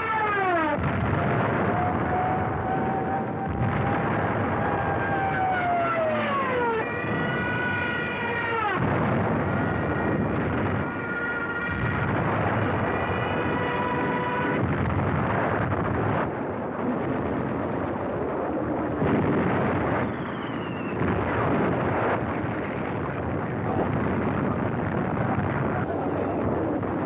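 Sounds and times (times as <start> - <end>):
whining tone: 0.0 - 16.3
rumble of explosions: 0.0 - 27.0.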